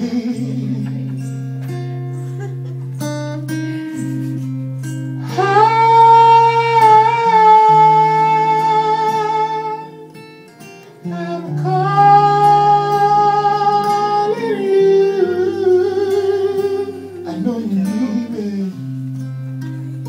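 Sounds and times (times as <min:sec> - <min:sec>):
acoustic guitar: 0:00.0 - 0:20.0
man singing long high notes: 0:05.2 - 0:10.0, 0:11.0 - 0:19.0.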